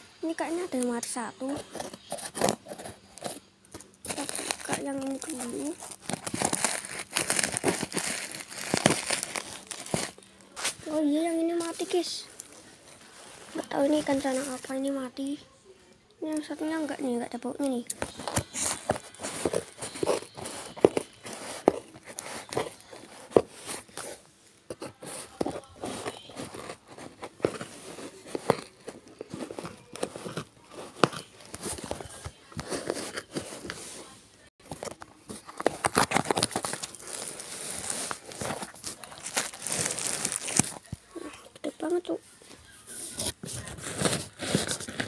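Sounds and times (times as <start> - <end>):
plastic bags crinkling: 3.9 - 14.9, 34.6 - 41.1.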